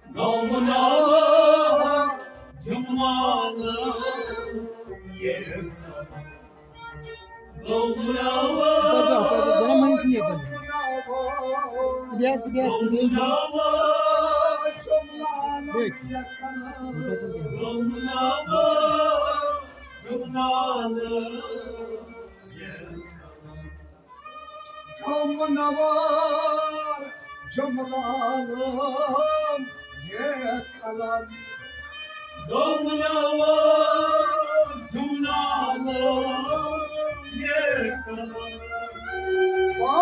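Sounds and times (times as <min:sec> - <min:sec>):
man chanting melodically: 0:07.7 - 0:22.0.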